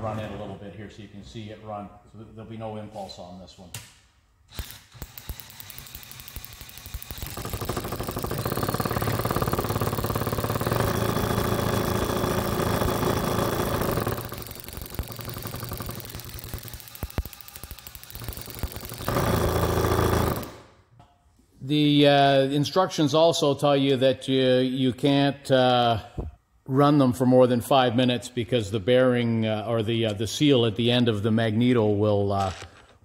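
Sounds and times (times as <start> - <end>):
fast spark ticking: 4.5 - 20.6
cordless drill motor spinning: 4.7 - 20.6.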